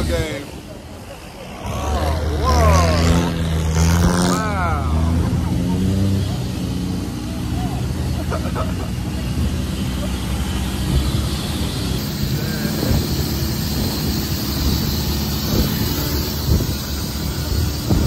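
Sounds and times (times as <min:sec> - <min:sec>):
boat engine running: 0:01.0 - 0:18.0
wind noise on microphone: 0:10.8 - 0:18.0.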